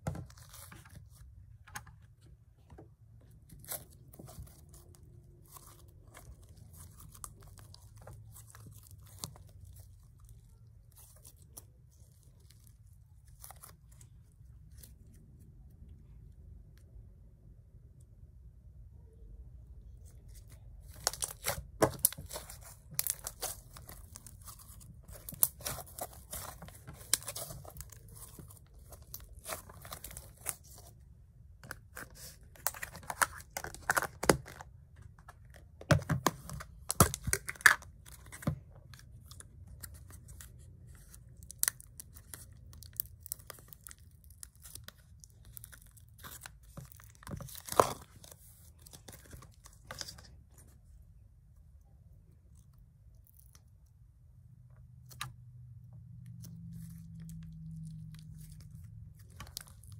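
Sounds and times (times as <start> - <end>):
slime crackling and popping: 20.8 - 30.8, 41.0 - 50.0.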